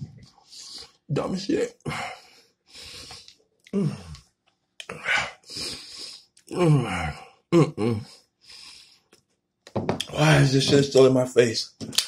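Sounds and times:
man groaning in pain: 3.7 - 4.2, 6.5 - 8.1
sharp breaths hissed: 5.4 - 6.3.

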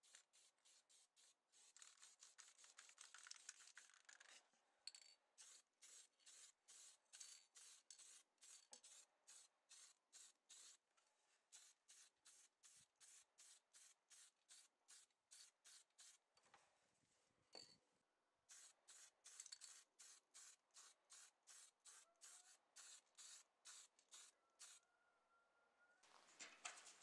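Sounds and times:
paint spray hissing bursts: 0.0 - 2.8, 5.4 - 10.8, 11.5 - 16.2, 18.5 - 24.8.

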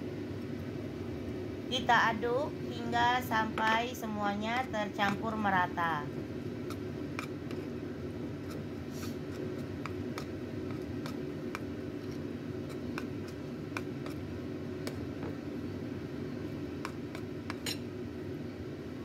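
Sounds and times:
steady low hum: 0.0 - 19.0
spoon stirring thick batter: 8.4 - 15.1, 16.8 - 17.9.

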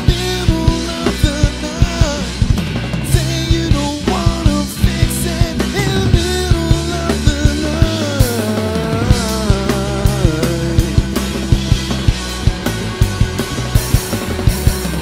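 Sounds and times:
man singing: 0.0 - 11.5
bass guitar: 0.0 - 15.0
drum kit beat: 0.0 - 15.0
electric guitar: 0.0 - 15.0.

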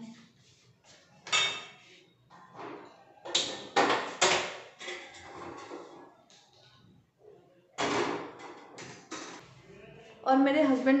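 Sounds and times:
steel pots and utensils clattering: 1.3 - 1.8, 2.4 - 6.2.

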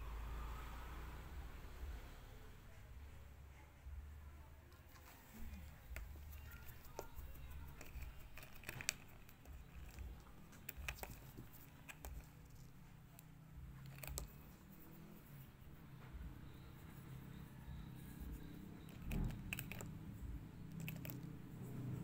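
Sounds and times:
plastic brush clicking: 4.9 - 14.5.

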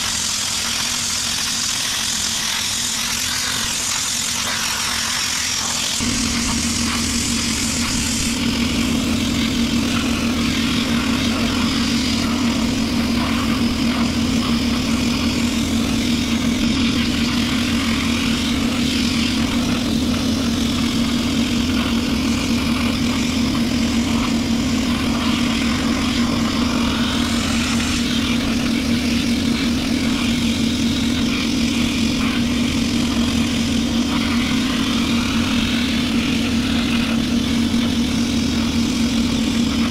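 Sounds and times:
air compressor humming: 0.0 - 39.9
sandblaster hissing: 0.0 - 39.9.

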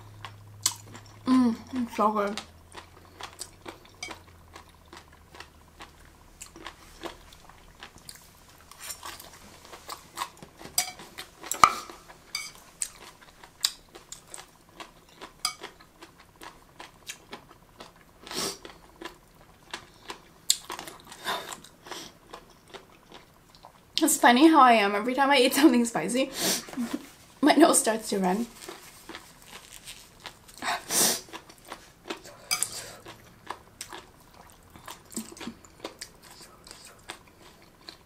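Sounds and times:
crunchy chewing: 0.0 - 23.8, 28.5 - 38.0.

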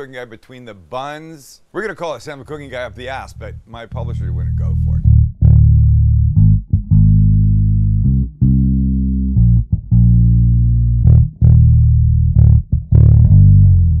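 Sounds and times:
bass guitar plucked notes: 2.5 - 14.0
guitar: 3.9 - 14.0.

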